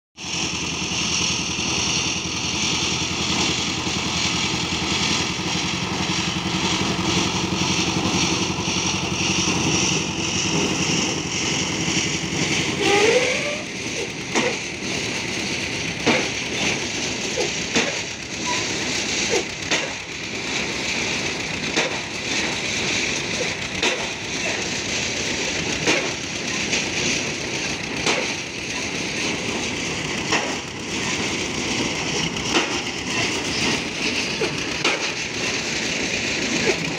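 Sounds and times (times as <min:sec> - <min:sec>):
machinery engine running: 0:00.2 - 0:36.9
knocks and bangs of work: 0:14.0 - 0:36.9.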